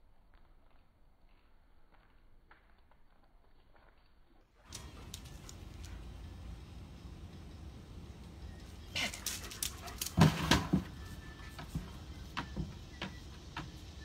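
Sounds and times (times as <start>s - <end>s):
dogs scrabbling on concrete: 1.9s - 6.2s, 9.0s - 13.7s
thumps and rattles of dog cots: 10.0s - 13.7s.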